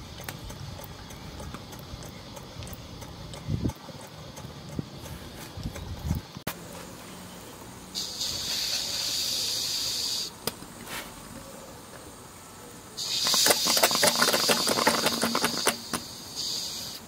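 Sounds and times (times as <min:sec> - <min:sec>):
fast irregular clicking: 0:00.0 - 0:06.4, 0:13.0 - 0:16.2
steam hissing: 0:07.9 - 0:11.2, 0:13.0 - 0:17.0
steam engine running: 0:13.0 - 0:17.0.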